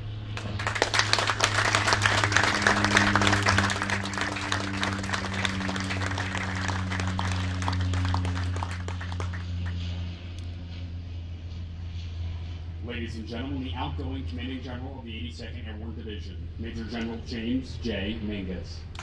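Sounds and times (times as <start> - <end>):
steady low hum: 0.0 - 19.0
audience applauding: 0.4 - 9.8.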